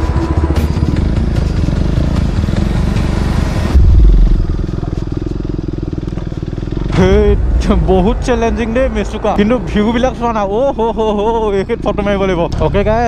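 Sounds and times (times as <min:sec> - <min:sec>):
motorcycle engine running: 0:00.0 - 0:13.0
loud low rumble: 0:03.1 - 0:10.8.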